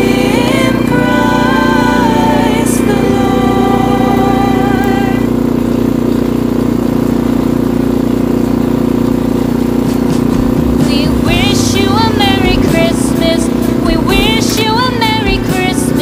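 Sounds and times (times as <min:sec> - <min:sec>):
music: 0:00.0 - 0:05.2, 0:09.9 - 0:16.0
engine humming: 0:00.0 - 0:16.0.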